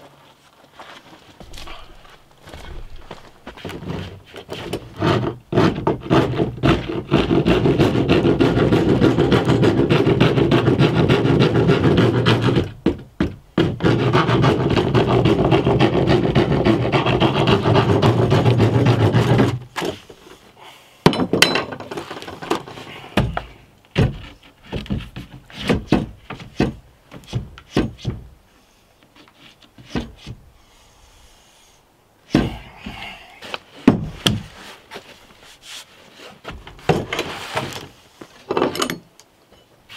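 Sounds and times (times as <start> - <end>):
plywood knocks and bumps: 1.3 - 20.1, 21.1 - 28.3, 29.7 - 30.4, 32.3 - 33.1, 33.8 - 35.1, 36.4 - 37.9
tool rasping on plywood: 3.8 - 19.6.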